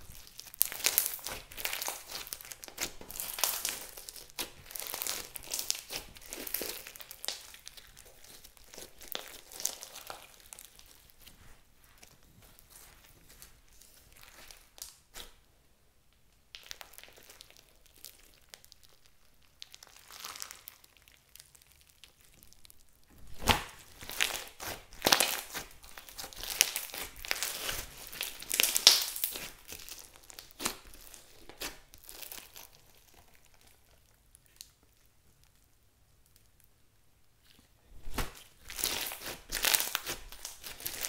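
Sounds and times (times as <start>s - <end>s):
slime clicking and popping: 16.5s - 33.9s.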